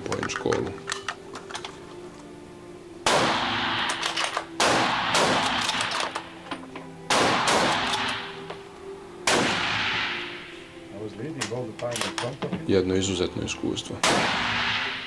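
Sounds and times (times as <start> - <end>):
soft background music: 0.0 - 15.0
rifle shots echoing: 3.0 - 6.3, 7.1 - 8.5, 9.2 - 10.6, 14.0 - 15.0.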